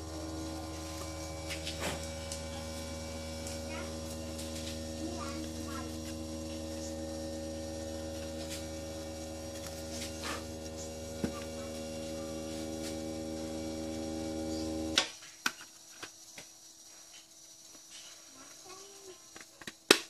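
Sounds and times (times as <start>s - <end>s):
electrical equipment hum: 0.0s - 15.1s.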